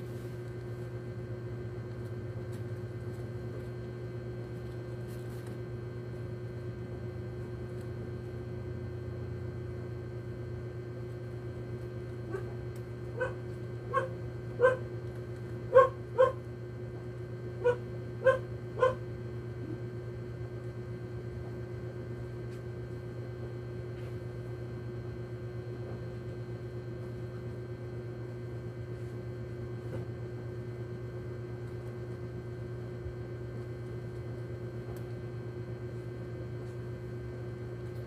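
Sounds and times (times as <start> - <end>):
steady low hum: 0.0 - 38.0
dog barking: 12.3 - 12.6, 13.2 - 14.9, 15.7 - 16.4, 17.6 - 19.0.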